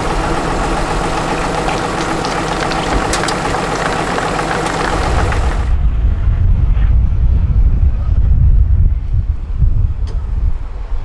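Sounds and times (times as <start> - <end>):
truck diesel engine idling: 0.0 - 5.8.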